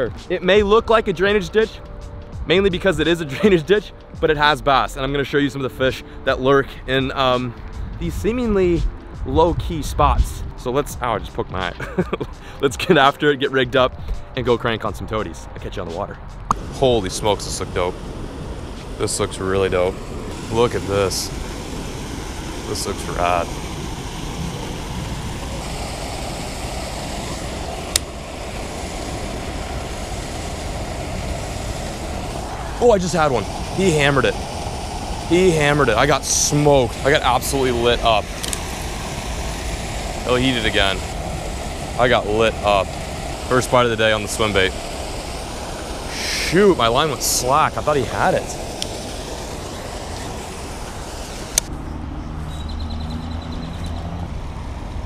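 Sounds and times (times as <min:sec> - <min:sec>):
distant traffic: 0:00.0 - 0:55.0
outdoor background noise: 0:13.9 - 0:55.0
vehicle engine humming: 0:15.1 - 0:55.0
water rushing over weir: 0:16.5 - 0:51.7
sharp click: 0:38.4 - 0:38.7.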